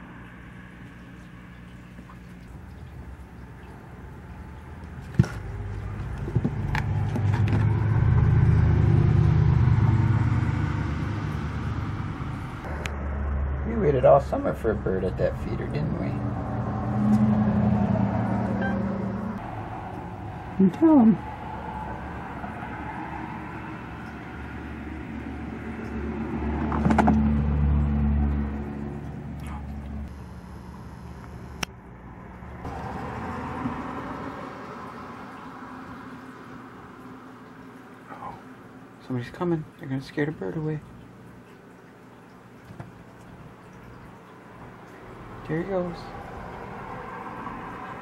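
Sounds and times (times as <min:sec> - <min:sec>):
vehicle engine rumble passing: 0:03.6 - 0:30.1, 0:31.9 - 0:38.0, 0:43.6 - 0:48.0.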